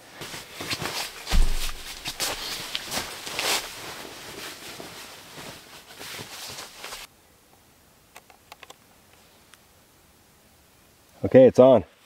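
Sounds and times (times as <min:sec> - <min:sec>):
sleeping bag and bedding rustling: 0:00.0 - 0:07.1
soft knocks: 0:01.3 - 0:02.7.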